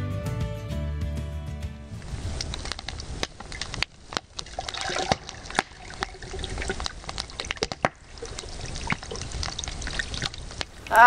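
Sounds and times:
liquid pouring into a mug: 4.4s - 10.5s.

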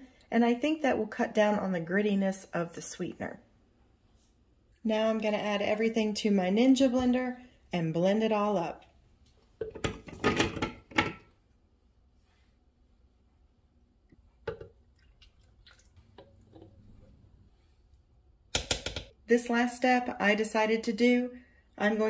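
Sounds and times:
soft pouring: 14.0s - 18.1s.

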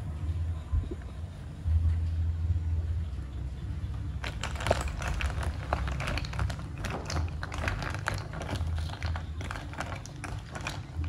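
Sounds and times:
low steady rumble: 0.0s - 11.0s
snail shells clattering in a pot: 4.2s - 11.0s.

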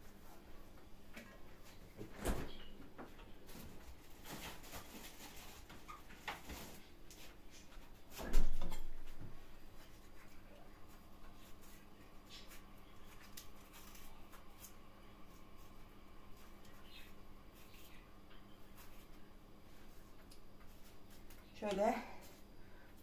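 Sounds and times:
faint kitchen clicks: 8.2s - 9.2s.

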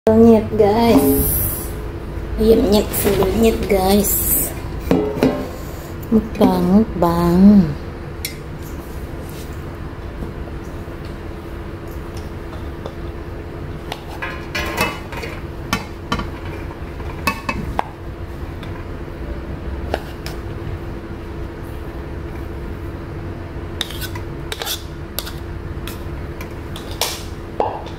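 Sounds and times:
low hum: 0.1s - 12.0s.

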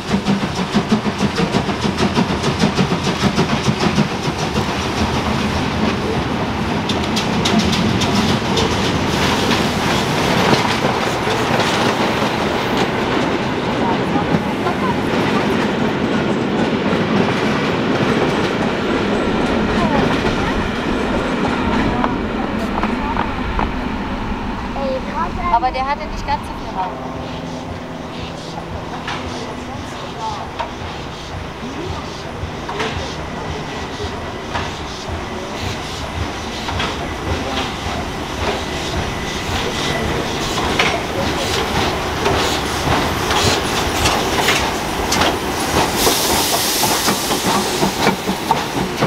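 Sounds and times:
wheels clicking over rail joints: 0.0s - 20.7s, 29.0s - 49.0s
train rolling past: 0.0s - 49.0s.

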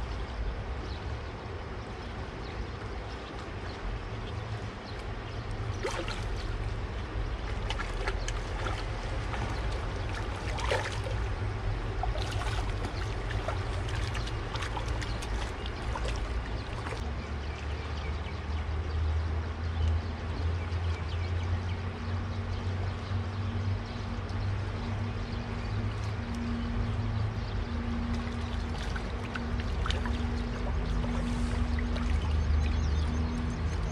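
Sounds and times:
steady low rumble: 0.0s - 17.9s, 22.5s - 33.9s
fish splashing at water surface: 5.7s - 17.0s, 28.1s - 33.8s.

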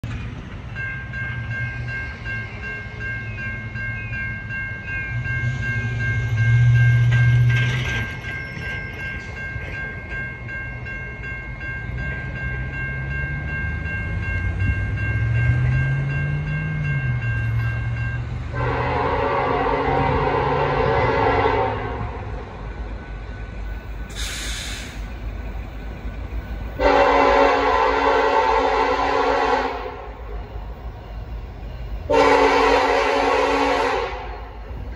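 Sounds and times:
crossing bell ringing: 0.0s - 34.9s
locomotive horn: 18.5s - 22.3s, 26.8s - 30.4s, 32.1s - 34.6s.

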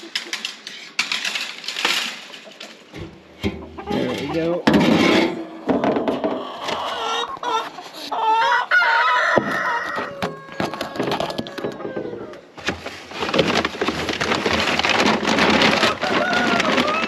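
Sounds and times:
dense rustling: 0.9s - 6.3s, 11.9s - 17.0s
chickens clucking: 1.9s - 17.0s
rooster crowing: 8.2s - 12.4s, 15.9s - 17.0s.

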